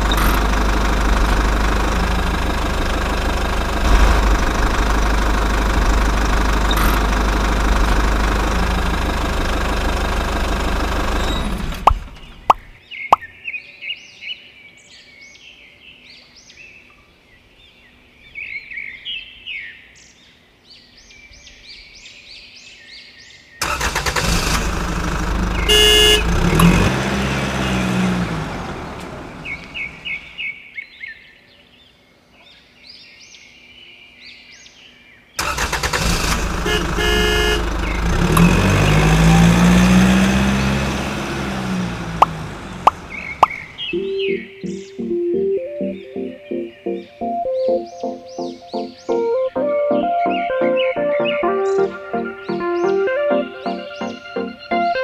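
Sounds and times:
loud engine-like roar: 0.0 - 12.7, 23.6 - 30.4, 35.4 - 44.0
birds chirping: 0.0 - 23.9, 25.3 - 55.0
short horn-like tone: 36.7 - 37.7.

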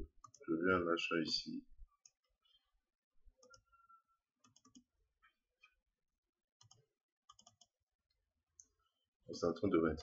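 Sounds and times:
computer mouse clicks: 0.2 - 0.4, 3.4 - 3.7, 4.4 - 4.9, 6.6 - 7.7.

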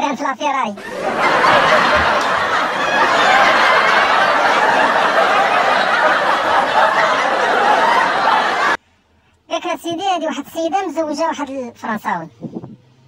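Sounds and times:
crowd laughing: 0.8 - 8.8.

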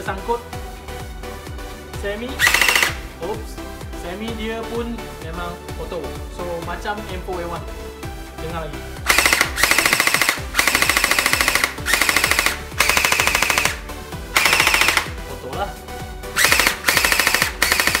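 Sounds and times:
gel blaster firing automatic bursts: 2.4 - 3.0, 9.1 - 13.8, 14.4 - 15.2, 16.4 - 18.0.

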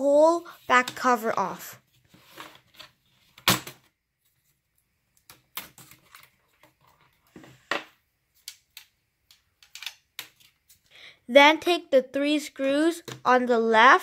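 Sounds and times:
plastic clips clicking and snapping: 8.4 - 10.4.

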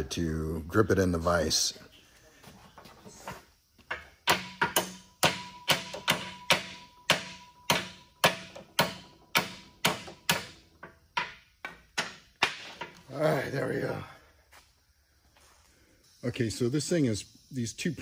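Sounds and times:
hammer striking steel: 3.9 - 10.6.

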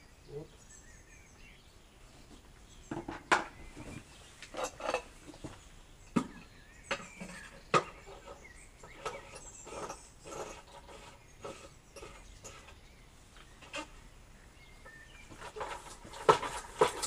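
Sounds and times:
buckets knocking and clattering: 2.9 - 12.8, 14.8 - 17.0.

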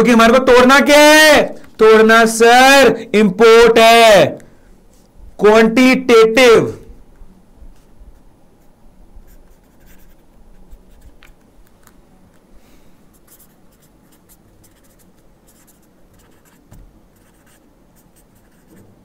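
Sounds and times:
marker pen scratching on paper: 8.6 - 11.4, 13.1 - 18.9.

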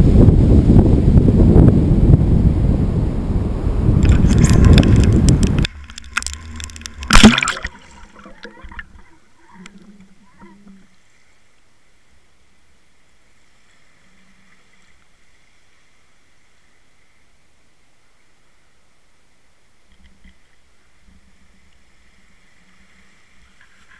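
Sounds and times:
surf: 0.0 - 18.7
wind: 0.0 - 23.9
faint underwater hiss: 3.5 - 23.9
splash and gurgling: 4.0 - 10.6.

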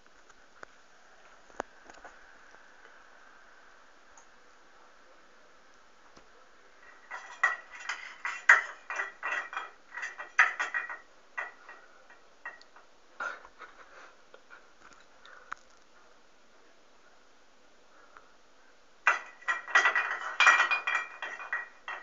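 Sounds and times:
tin decorations clinking: 19.1 - 22.0.

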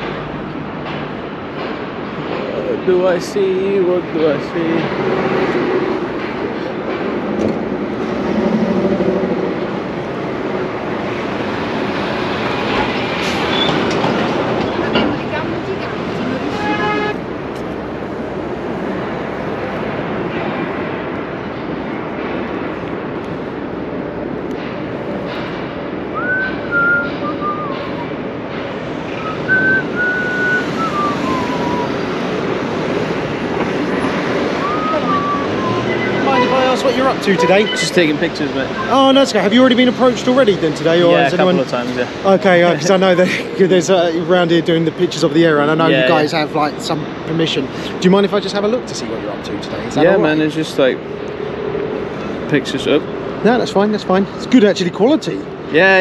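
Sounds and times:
city street noise: 0.0 - 56.0
diesel lorry passing: 0.0 - 56.0
road traffic rumble: 0.0 - 56.0
person whistling a slow tune: 26.2 - 28.2, 29.2 - 32.2, 34.6 - 36.2.

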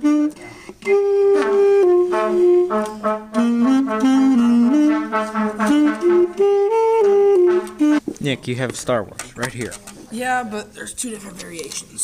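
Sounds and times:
alto saxophone melody: 0.0 - 8.0.

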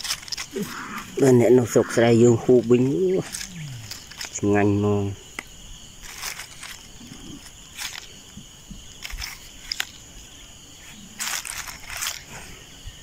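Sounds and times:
dry straw crackling: 0.0 - 4.5, 6.0 - 10.1, 10.8 - 12.4
insect drone: 0.0 - 13.0.

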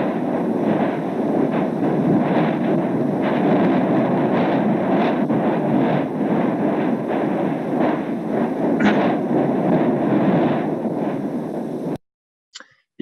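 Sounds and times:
deep volcanic rumbling: 0.0 - 12.0
short explosive blasts: 8.8 - 10.6.

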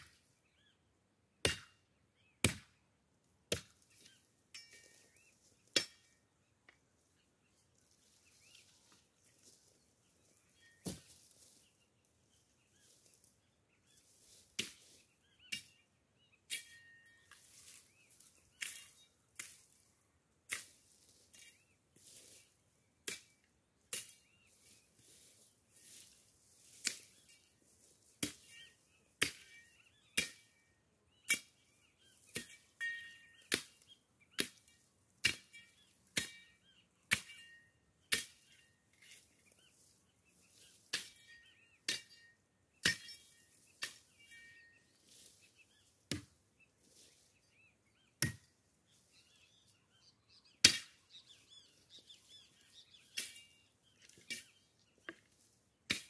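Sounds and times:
birds chirping: 0.0 - 55.5
machete chopping brush: 25.1 - 27.4, 50.6 - 51.3.

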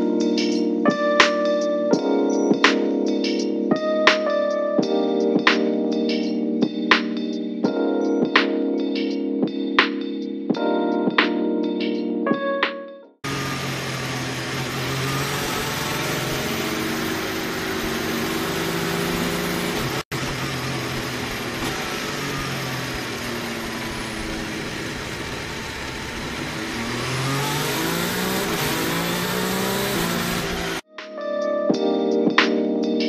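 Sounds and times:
racing car engine revving: 13.2 - 30.8.

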